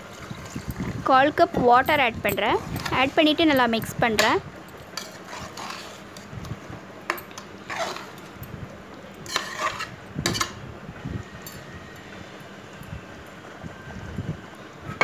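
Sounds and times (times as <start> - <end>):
spoon scraping metal pot: 5.0 - 6.3, 7.3 - 8.3, 9.2 - 10.6.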